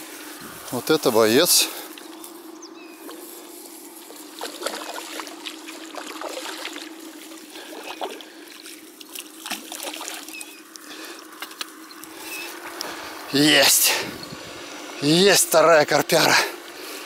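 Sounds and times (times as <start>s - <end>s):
steady hum: 0.0s - 17.0s
water splashing from thrashing fish: 4.3s - 10.5s.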